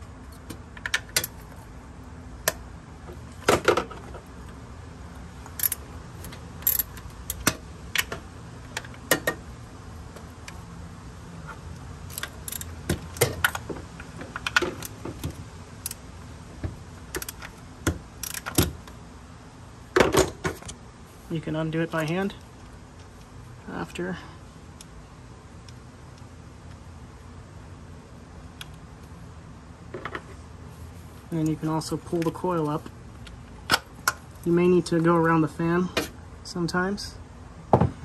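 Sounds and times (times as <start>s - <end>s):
ratchet clicking on bolts: 5.5s - 8.1s, 12.1s - 13.6s, 18.2s - 18.7s.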